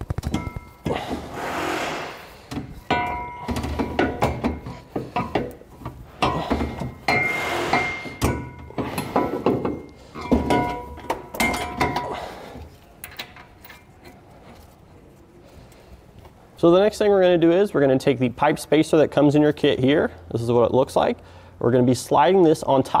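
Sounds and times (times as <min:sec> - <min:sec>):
metal knocks and clinks: 0:00.1 - 0:01.2, 0:02.5 - 0:12.4.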